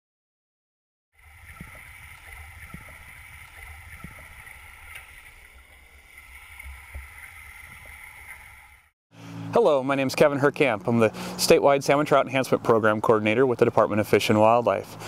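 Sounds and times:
underwater rush of stream water: 1.2s - 8.9s.

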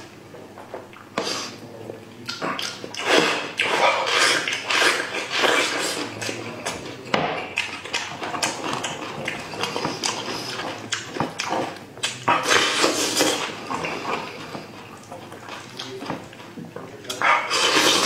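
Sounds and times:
wet chewing and lip smacking: 2.1s - 6.8s, 7.5s - 16.5s.

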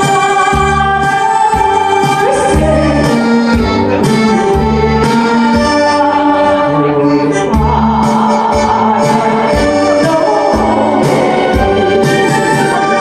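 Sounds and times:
electronic keyboard melody: 0.0s - 13.0s
pulsing bass line: 0.0s - 13.0s.

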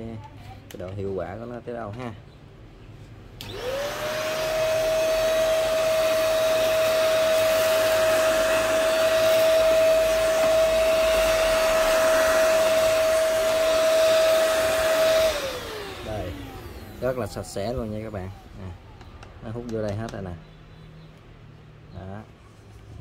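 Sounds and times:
handheld vacuum cleaner whine: 3.4s - 18.4s.

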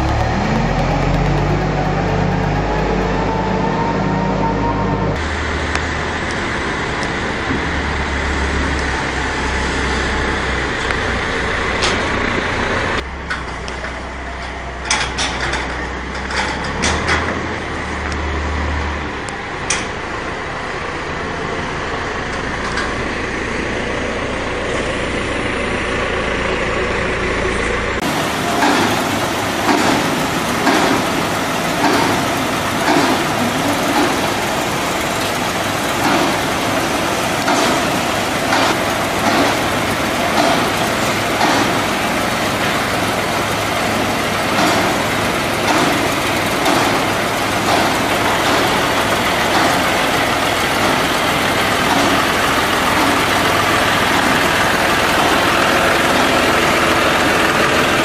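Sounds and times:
tractor engine running: 0.0s - 58.0s.

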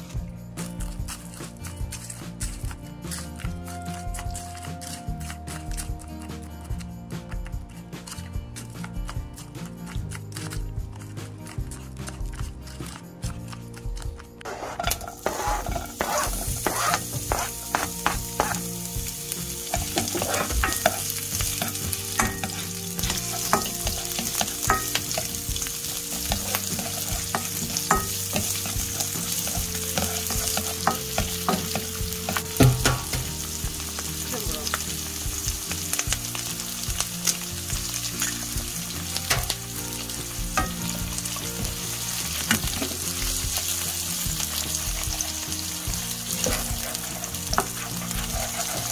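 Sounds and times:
egg sizzling: 0.0s - 48.9s
spatula tapping and scraping pan: 14.4s - 18.6s, 19.7s - 33.3s, 46.4s - 48.9s
onion sizzling in frying pan: 14.4s - 48.9s.

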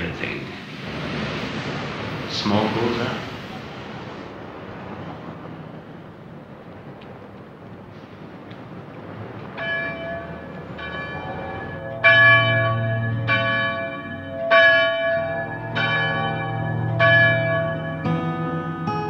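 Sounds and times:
faint street noise: 0.0s - 19.0s
church bells ringing: 9.1s - 19.0s.

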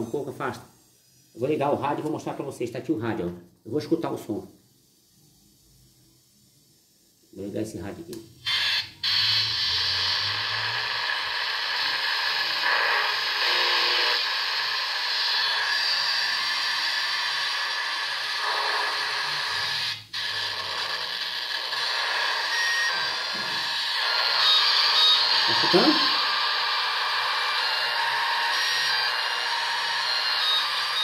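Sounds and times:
radio static hiss: 7.3s - 31.0s
faint radio whistles: 8.5s - 31.0s.

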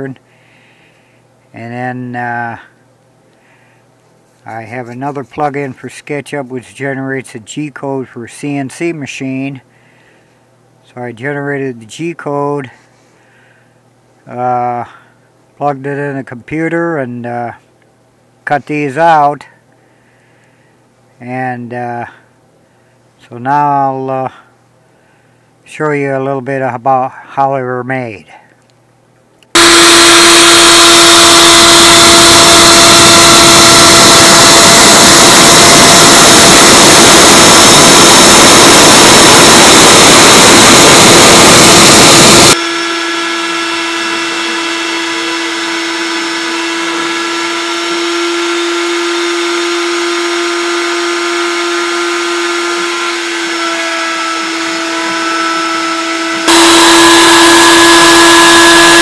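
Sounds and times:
wood router whining: 29.6s - 59.0s.

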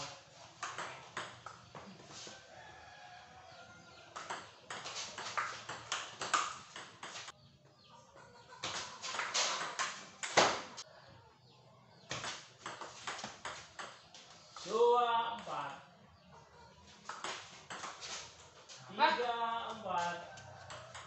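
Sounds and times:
ping-pong ball hits: 0.6s - 1.6s, 4.1s - 7.3s, 8.7s - 10.8s, 12.1s - 14.0s, 17.1s - 18.1s, 20.7s - 21.0s.

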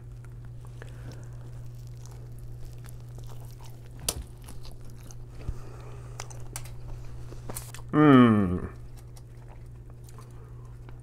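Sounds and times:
crust crunching: 0.0s - 7.9s
steady low hum: 0.0s - 11.0s.

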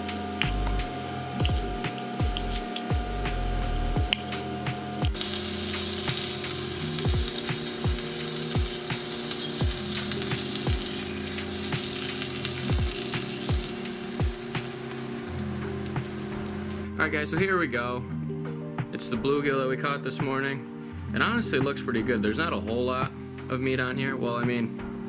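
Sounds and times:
background music with beat: 0.0s - 25.0s
fish fillets sizzling in oil: 5.1s - 16.9s.

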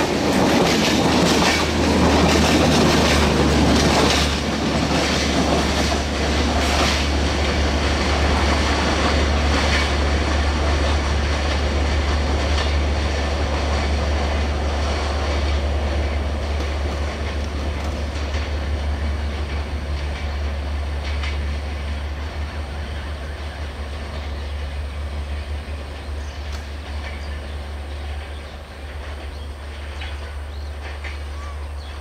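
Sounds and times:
train rumble and wheel noise: 0.0s - 32.0s
faint clicks: 26.4s - 27.2s.

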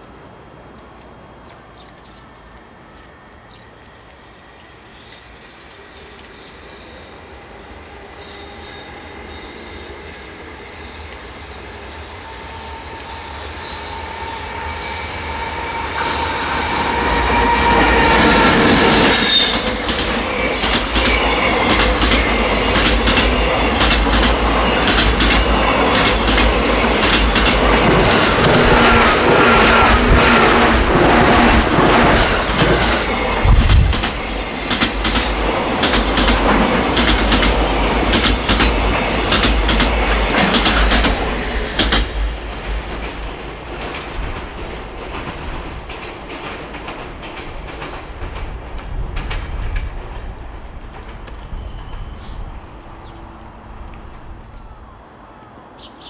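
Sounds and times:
high wheel squeal: 12.3s - 23.8s.

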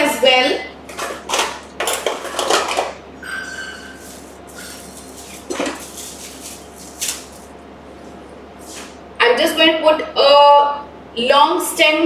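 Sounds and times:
kitchenware clinking: 0.9s - 6.3s.

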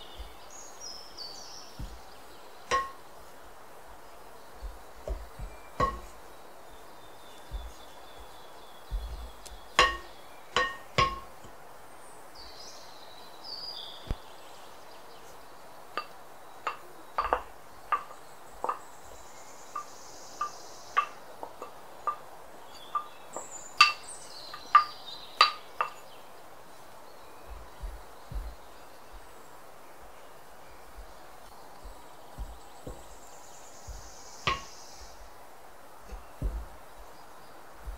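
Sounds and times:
glass dish tapping bowl rim: 2.7s - 3.0s, 5.0s - 6.1s, 9.8s - 11.3s, 33.9s - 34.6s.

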